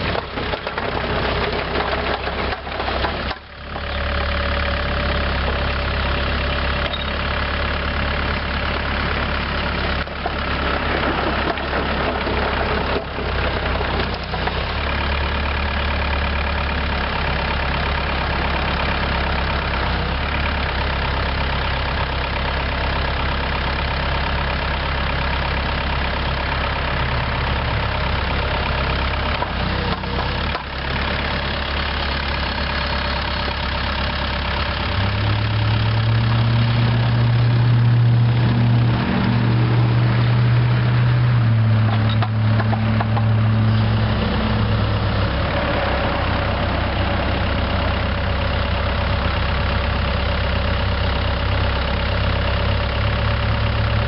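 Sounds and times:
diesel excavator engine running: 0.0s - 54.0s.

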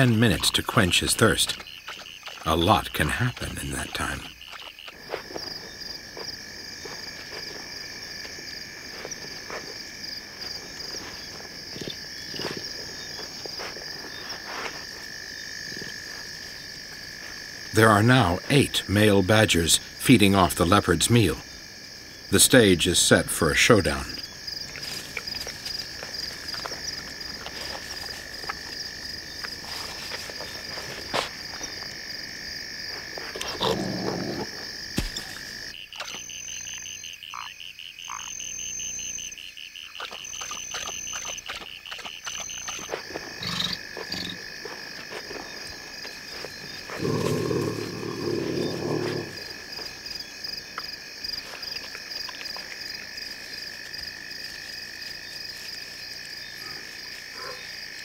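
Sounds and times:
insects trilling: 0.0s - 58.0s
pulsing insect or frog call: 23.5s - 58.0s
animal growls: 33.4s - 34.6s, 46.9s - 49.6s.

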